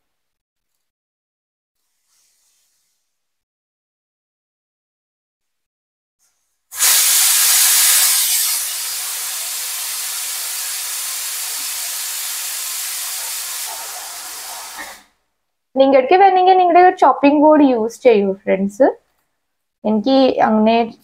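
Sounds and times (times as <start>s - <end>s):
water running from a tap: 6.8s - 15.1s.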